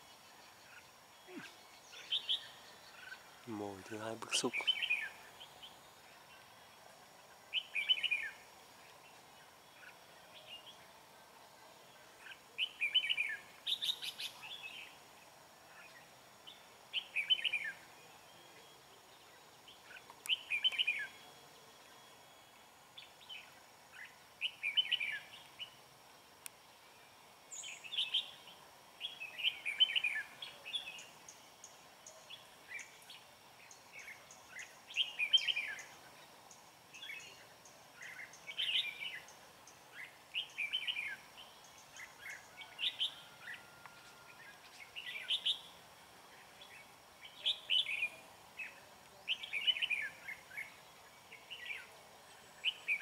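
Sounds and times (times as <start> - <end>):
bulbuls singing: 0.0 - 10.9, 11.9 - 25.9, 27.6 - 53.0.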